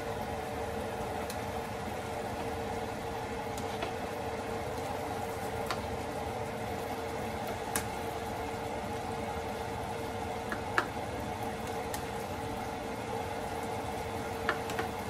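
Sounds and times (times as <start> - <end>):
spatula clicking against pan: 14.5 - 14.9.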